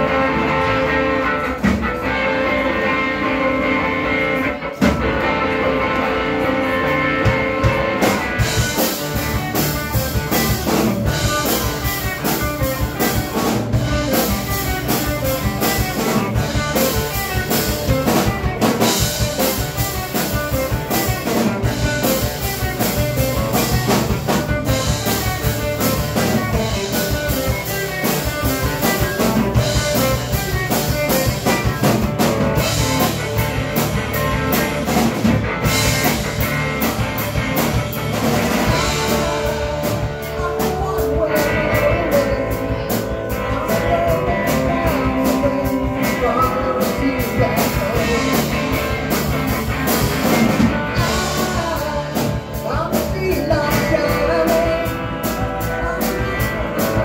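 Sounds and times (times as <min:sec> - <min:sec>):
bass guitar: 0:00.0 - 0:57.0
drum kit with cymbals: 0:00.0 - 0:57.0
electric guitar chords: 0:00.0 - 0:57.0.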